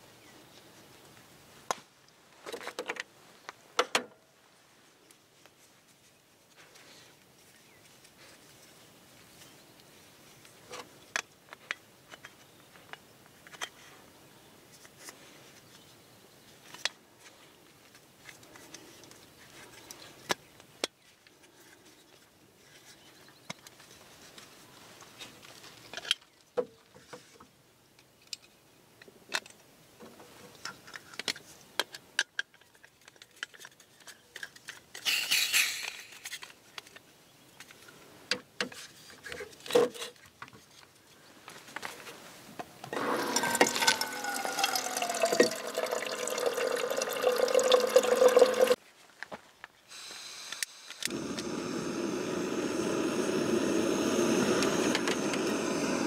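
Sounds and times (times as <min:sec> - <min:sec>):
camping gear clicks and knocks: 0:01.7 - 0:04.2.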